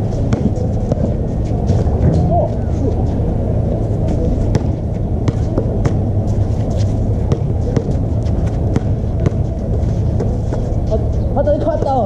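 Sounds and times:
low outdoor rumble: 0:00.0 - 0:12.0
basketball bouncing: 0:00.2 - 0:01.1, 0:04.5 - 0:06.1, 0:07.3 - 0:09.5.

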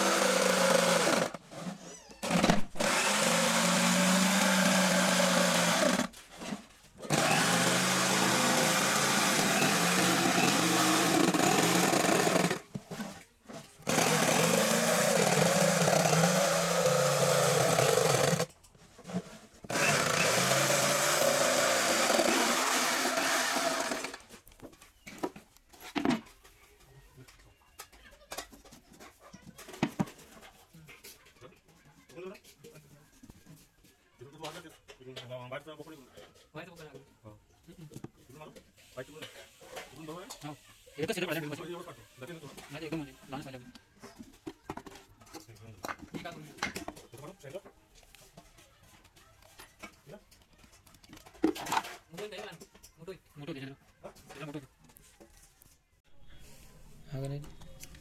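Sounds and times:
electric jigsaw cutting plywood: 0:00.0 - 0:06.1, 0:07.1 - 0:12.6, 0:13.8 - 0:18.5, 0:19.7 - 0:24.2.

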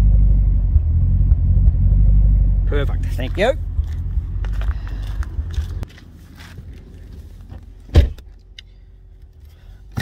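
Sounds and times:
faint footsteps: 0:03.2 - 0:07.9.

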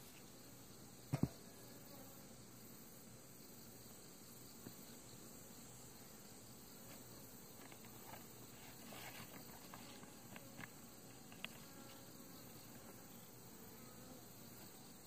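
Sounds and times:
faint rustling of paper: 0:06.8 - 0:12.1.

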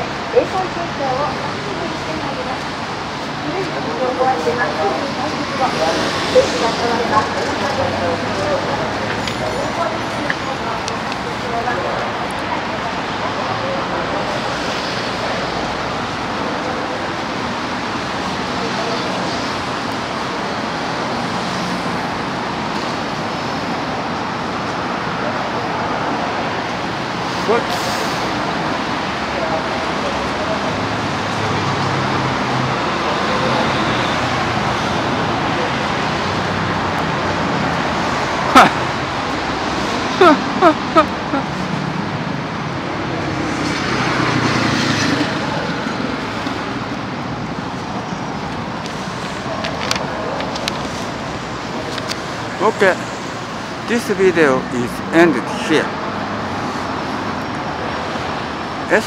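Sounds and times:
road traffic rushing: 0:00.0 - 0:59.0.

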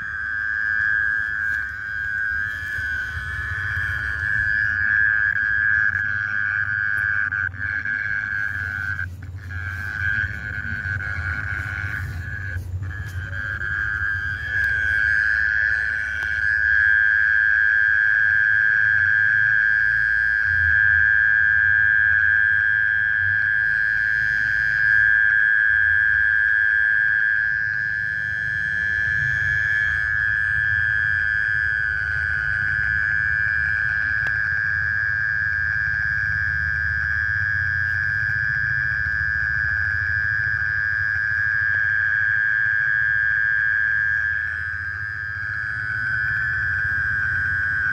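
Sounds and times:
low rumble: 0:00.0 - 0:17.6, 0:44.1 - 0:47.9
insect high-pitched trill: 0:00.0 - 0:47.9.

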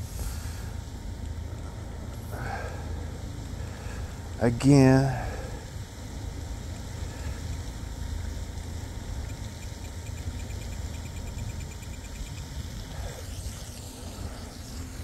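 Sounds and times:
scroll wheel ticking: 0:09.2 - 0:12.6.

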